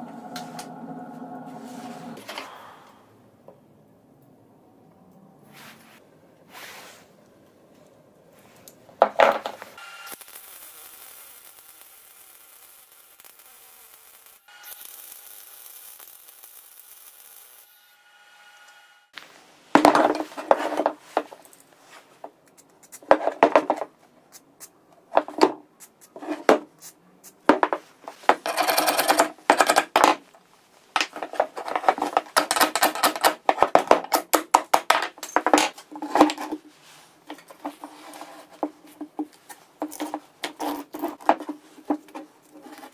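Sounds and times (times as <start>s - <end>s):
metal parts knocking on wooden bench: 9.0s - 9.6s, 19.8s - 21.4s, 27.5s - 30.2s, 31.0s - 36.6s
grinder grinding metal: 9.8s - 18.8s.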